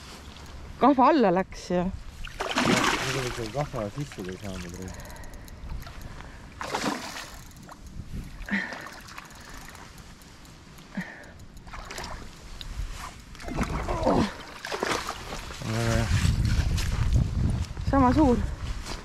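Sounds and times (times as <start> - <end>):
water splashing: 2.1 - 5.2, 5.8 - 10.4, 11.0 - 15.9.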